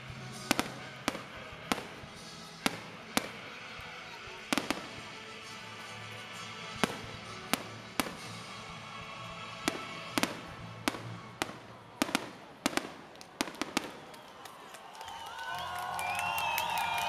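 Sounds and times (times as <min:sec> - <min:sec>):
firework shells bursting: 0:00.3 - 0:03.8, 0:04.4 - 0:08.7, 0:09.6 - 0:14.5.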